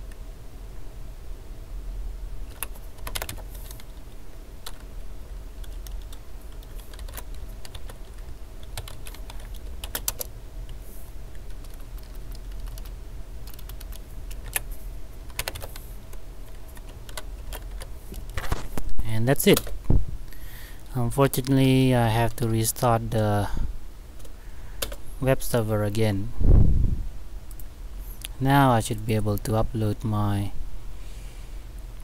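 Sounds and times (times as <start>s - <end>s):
keyboard typing: 2.5s - 4.9s, 5.6s - 10.3s, 11.3s - 14.7s, 15.3s - 18.5s.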